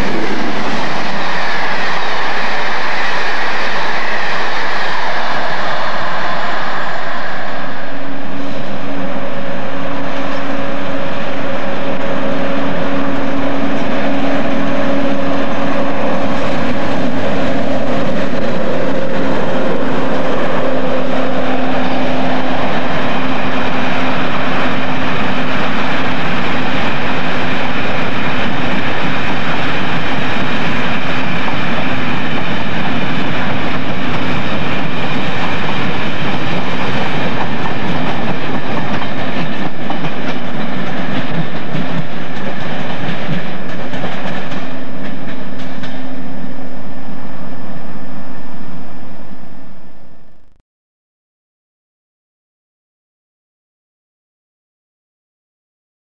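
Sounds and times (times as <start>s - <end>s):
diesel locomotive engine: 0.0s - 50.5s
train wheels clattering on rails: 10.2s - 46.2s.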